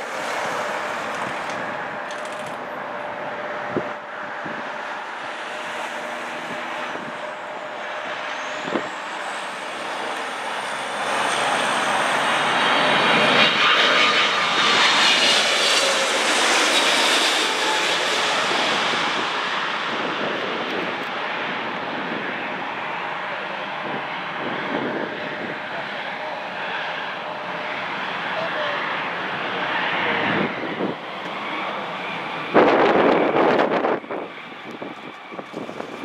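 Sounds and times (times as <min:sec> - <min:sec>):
jet engines rushing with whine: 0:00.0 - 0:36.0.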